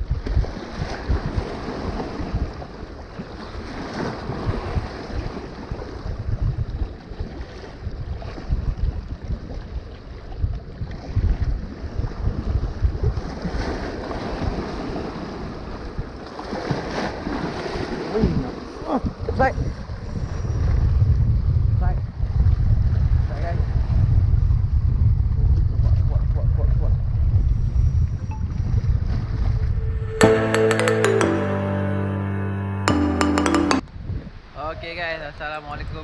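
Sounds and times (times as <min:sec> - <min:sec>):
wind buffeting microphone: 0:18.2 - 0:29.8.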